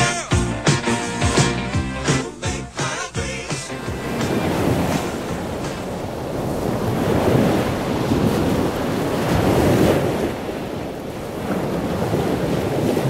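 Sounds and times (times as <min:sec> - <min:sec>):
surf on beach: 0:00.0 - 0:13.0
wind buffeting microphone: 0:03.9 - 0:13.0.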